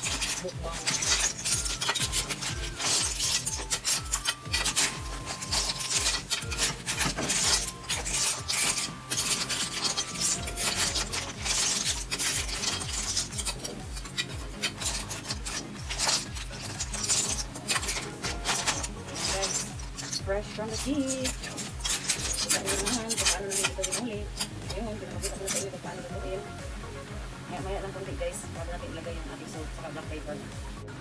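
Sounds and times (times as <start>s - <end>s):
shells clattering in metal pan: 0.0s - 24.6s.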